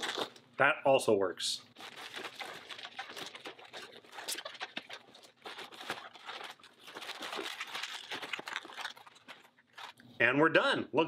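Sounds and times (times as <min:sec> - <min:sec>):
balloons squeaking and crackling: 0:00.0 - 0:00.4, 0:01.7 - 0:10.1.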